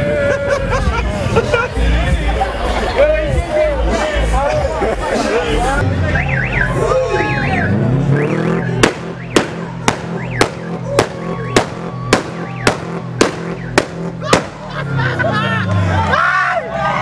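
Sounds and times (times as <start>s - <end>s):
steady drum beat: 8.8s - 14.6s.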